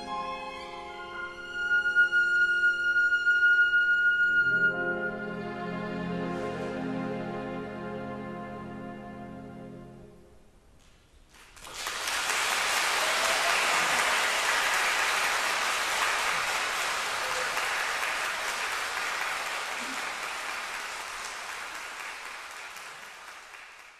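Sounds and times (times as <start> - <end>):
audience applauding: 11.3 - 23.9.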